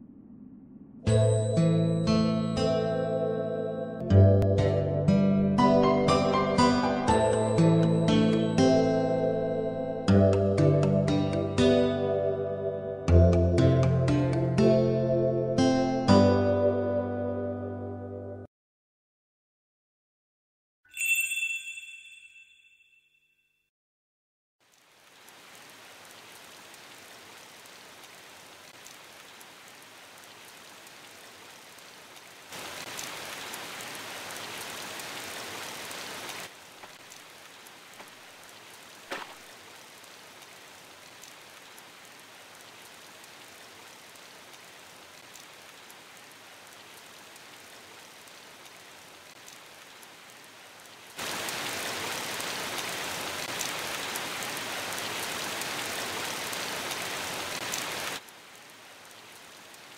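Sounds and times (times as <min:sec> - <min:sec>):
steady rain falling: 0:01.1 - 0:12.4, 0:24.6 - 0:59.9.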